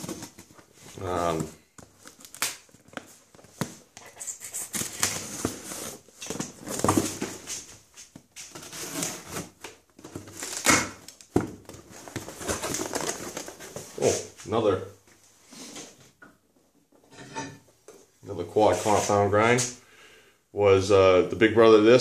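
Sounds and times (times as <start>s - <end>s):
cardboard flaps scraping and rustling: 4.7s - 14.4s
knife slitting tape and cardboard: 8.4s - 9.6s.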